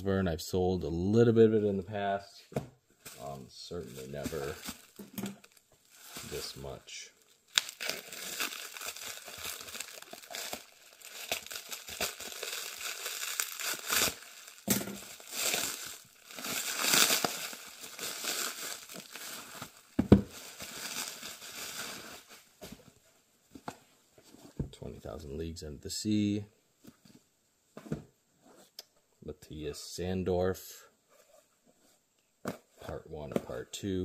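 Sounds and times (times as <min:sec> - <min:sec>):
plastic shrink wrap crinkling: 0:03.0 - 0:22.8.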